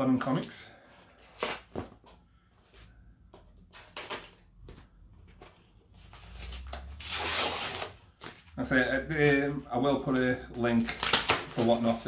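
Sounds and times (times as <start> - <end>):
cardboard package scraping open: 6.1 - 8.3.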